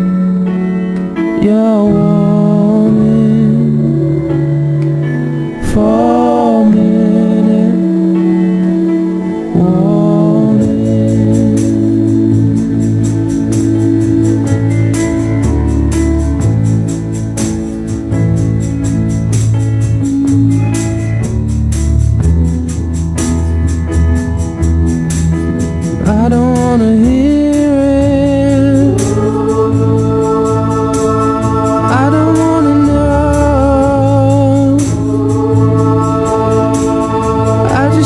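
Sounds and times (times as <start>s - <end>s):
person singing: 0.0s - 17.1s, 25.9s - 38.0s
pop song with drum beat: 25.9s - 38.0s.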